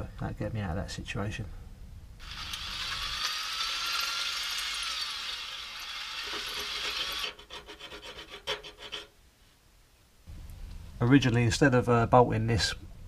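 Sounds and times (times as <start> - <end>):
drill cutting through steel: 2.2 - 7.5
small clicks and scrapes: 6.2 - 9.1.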